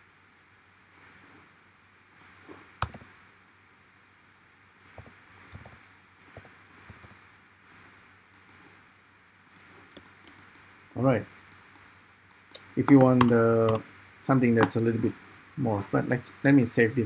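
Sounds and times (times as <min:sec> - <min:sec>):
mouse and keyboard clicks: 0:04.8 - 0:08.6, 0:09.5 - 0:10.7
steady hiss: 0:09.5 - 0:17.0.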